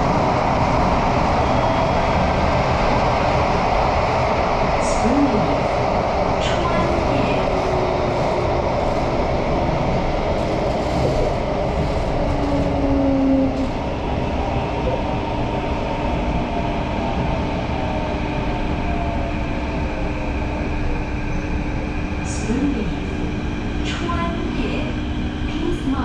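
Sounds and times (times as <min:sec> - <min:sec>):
train wheels rumbling on track: 0:00.0 - 0:26.0.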